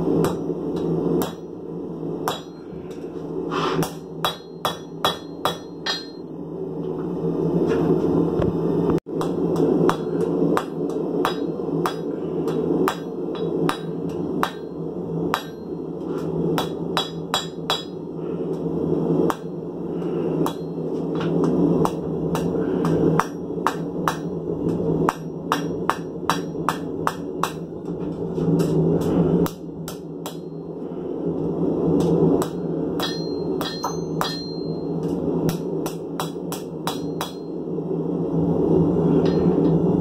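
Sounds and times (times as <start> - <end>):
steady low noise: 0.0 - 40.0
hammer striking metal on anvil: 0.2 - 1.6, 2.2 - 3.0, 3.8 - 6.4, 9.1 - 18.6, 19.2 - 19.6, 20.4 - 28.0, 28.6 - 30.7, 32.0 - 37.7, 39.2 - 39.8.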